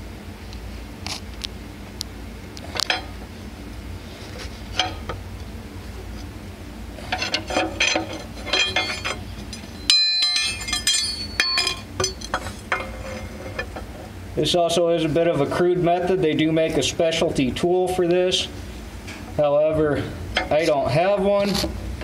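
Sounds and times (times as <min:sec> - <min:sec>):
steel bar clanking on metal: 0:04.8 - 0:05.2, 0:07.0 - 0:13.9.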